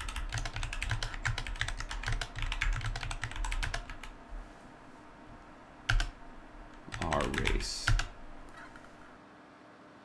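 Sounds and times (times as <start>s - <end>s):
typing on computer keyboard: 0.0s - 4.2s, 5.9s - 6.2s, 6.8s - 8.9s.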